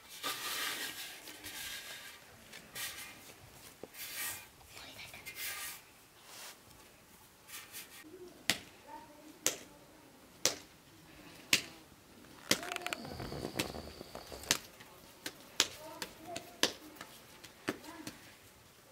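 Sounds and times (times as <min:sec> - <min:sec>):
dough patted between palms: 0:10.4 - 0:10.7, 0:12.4 - 0:18.3.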